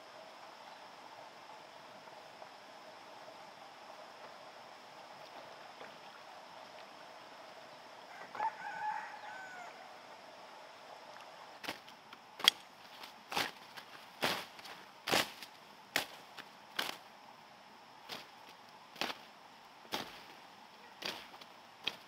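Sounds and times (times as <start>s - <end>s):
rooster crowing: 8.1s - 10.2s.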